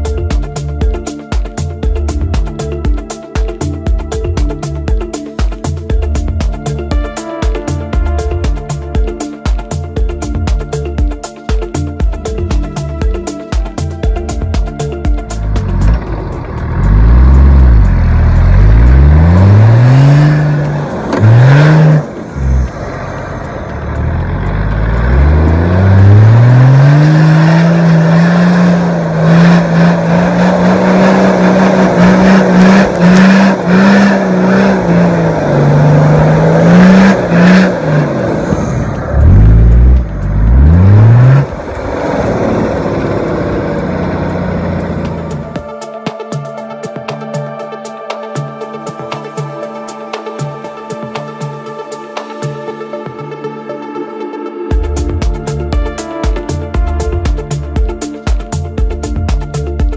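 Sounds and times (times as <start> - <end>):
off-road vehicle engine revving: 15.3 - 45.6.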